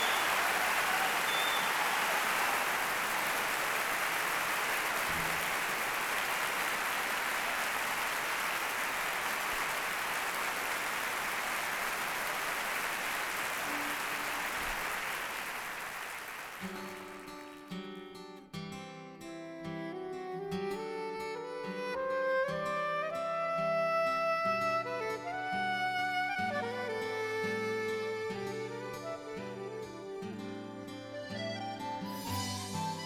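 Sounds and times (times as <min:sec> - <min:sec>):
large audience applauding: 0:00.0 - 0:17.7.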